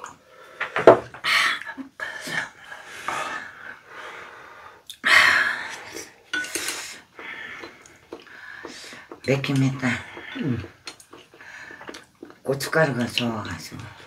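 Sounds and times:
hard breathing while eating: 2.6 - 12.4
chopsticks clinking on bowls: 6.3 - 6.9, 7.5 - 13.9.

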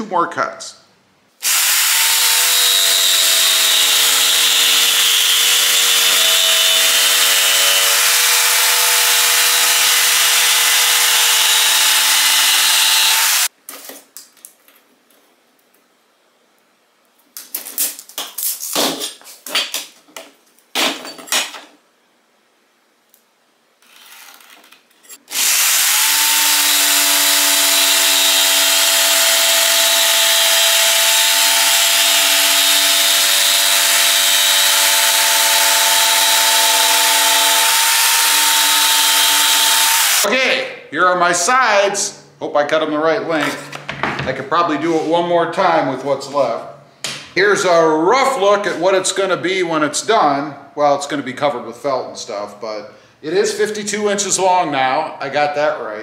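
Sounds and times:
jigsaw cutting wood: 1.4 - 13.5, 25.3 - 40.3.

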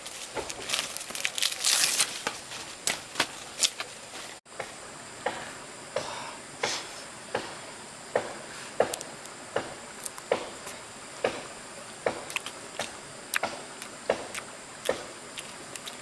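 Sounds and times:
leafy stalks rustling: 0.0 - 4.4
stalks snapping: 0.2 - 3.9, 8.2 - 16.0.

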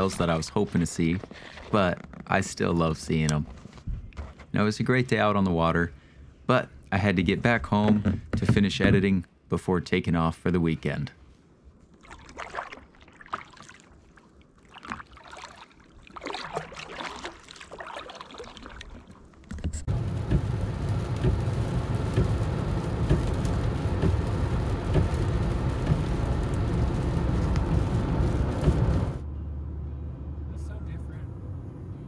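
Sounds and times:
paddle splashing in water: 11.9 - 20.5
car road rumble: 19.7 - 32.0.

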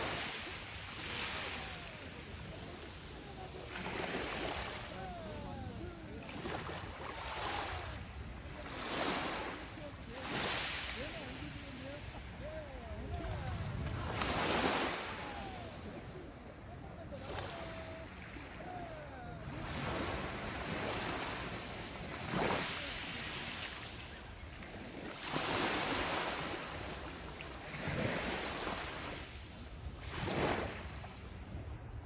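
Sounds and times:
waves washing up pebble beach: 0.0 - 24.2, 30.0 - 31.0.

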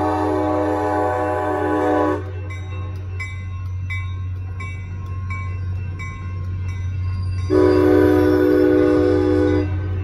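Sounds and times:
train horn: 0.0 - 2.4, 7.5 - 10.0
low rumble of passing train: 0.0 - 10.0
railroad crossing bell ringing: 0.0 - 10.0.

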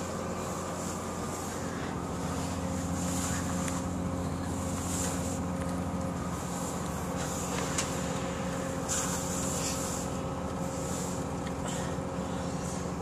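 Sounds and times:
train rumble inside carriage: 0.0 - 13.0
short hisses: 7.2 - 10.2.

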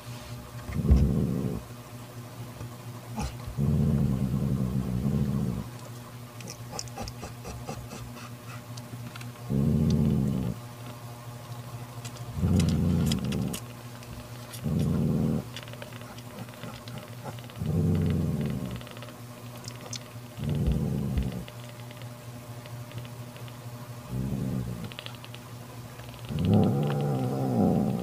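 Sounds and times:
cat growling: 0.7 - 1.6, 3.2 - 5.7, 9.5 - 10.6, 12.4 - 13.6, 14.6 - 19.0, 19.7 - 21.5, 24.1 - 25.0, 26.3 - 28.0.

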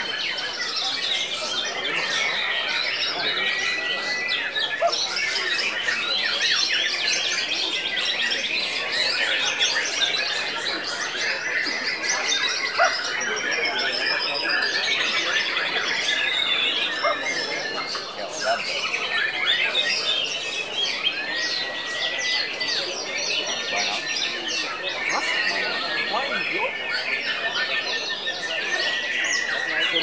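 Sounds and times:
birds chattering trills and chirps: 0.0 - 30.0.

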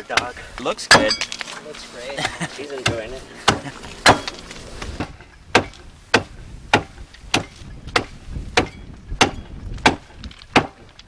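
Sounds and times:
meat cleaver chopping on wood: 2.8 - 4.4.

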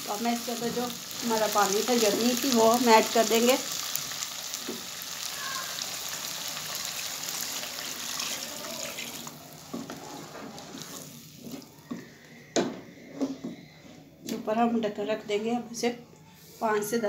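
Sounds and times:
pot bubbling: 0.0 - 12.2
water poured into hot pot: 5.9 - 11.7.

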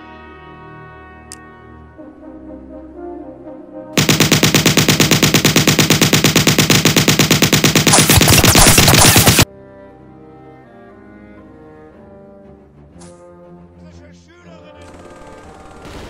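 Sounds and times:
soft brass music: 0.0 - 4.0
automatic gunfire: 4.0 - 9.5, 14.8 - 16.0.

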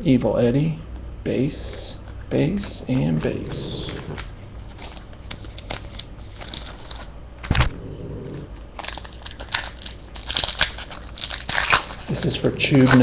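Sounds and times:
card pack wrapper crinkling: 3.9 - 7.6, 8.7 - 13.0.

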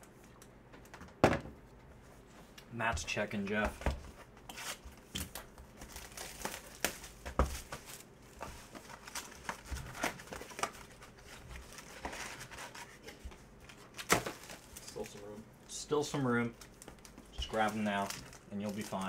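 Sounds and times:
shrink wrap crinkling: 4.5 - 19.0.

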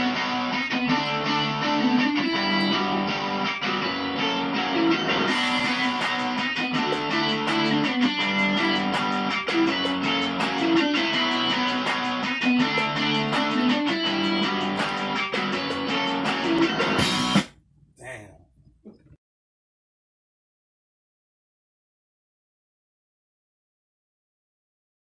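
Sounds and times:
guitar music with strummed chords: 0.0 - 17.5.

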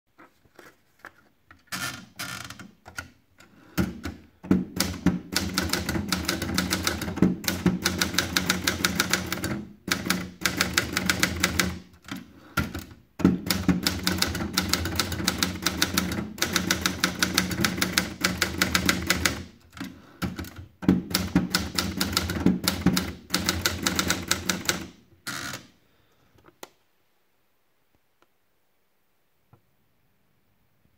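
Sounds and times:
fast typewriter typing: 3.8 - 25.0.

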